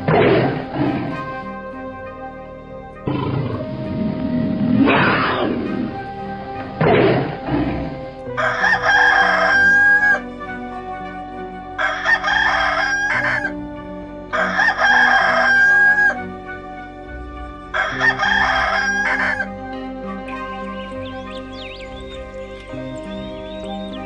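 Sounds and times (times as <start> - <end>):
rooster crowing: 8.4 - 10.2, 11.8 - 13.6, 14.3 - 16.3, 17.7 - 19.5.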